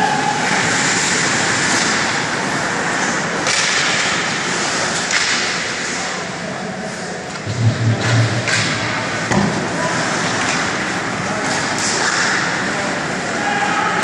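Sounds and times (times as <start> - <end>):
skates scraping on ice: 0.1 - 6.1.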